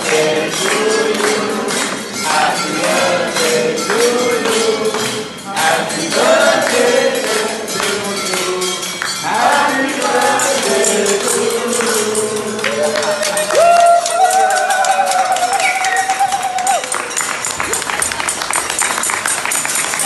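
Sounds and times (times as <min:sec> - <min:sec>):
group of people singing: 0:00.0 - 0:13.6
tambourine jingling: 0:00.0 - 0:20.0.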